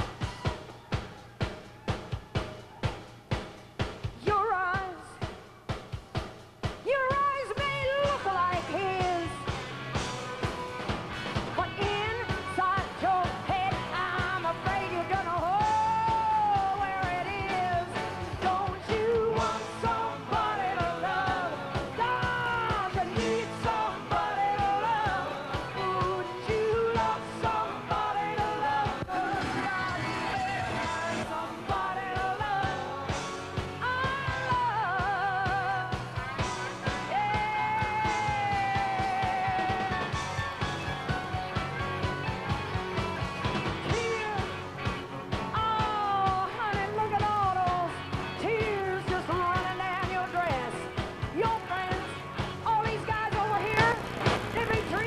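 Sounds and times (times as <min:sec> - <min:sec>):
drums: 0:00.0 - 0:55.0
woman singing: 0:04.2 - 0:05.2, 0:06.8 - 0:09.4, 0:11.6 - 0:33.1, 0:33.7 - 0:36.2, 0:37.0 - 0:40.1, 0:43.9 - 0:44.6, 0:45.5 - 0:55.0
electric guitars: 0:07.2 - 0:55.0.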